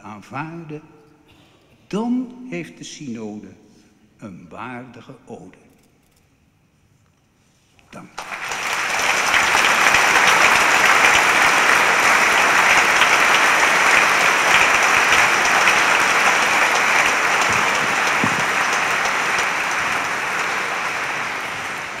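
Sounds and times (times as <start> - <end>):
audience applauding: 8.2 - 22.0.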